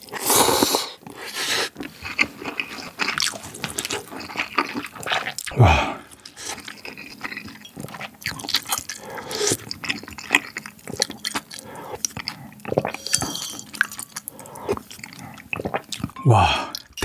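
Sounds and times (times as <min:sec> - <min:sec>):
chewing: 0:00.0 - 0:17.0
sipping broth: 0:11.4 - 0:17.0.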